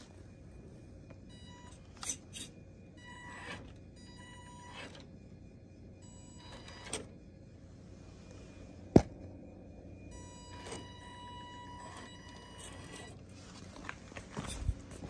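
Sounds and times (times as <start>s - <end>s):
small electric motor whining: 10.5s - 13.4s.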